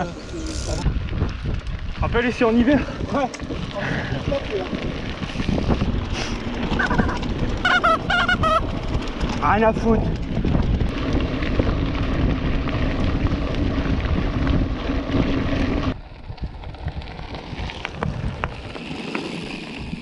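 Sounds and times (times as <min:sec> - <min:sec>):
wind buffeting microphone: 0:00.0 - 0:18.8
bike tyres rolling over gravel: 0:00.0 - 0:20.0
faint gravel crunches: 0:10.5 - 0:20.0.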